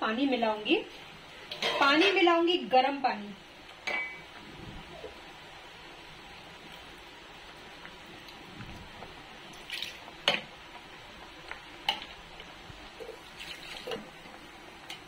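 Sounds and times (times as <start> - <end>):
faint steady hiss: 0.0 - 15.0
thick sauce simmering: 3.5 - 15.0.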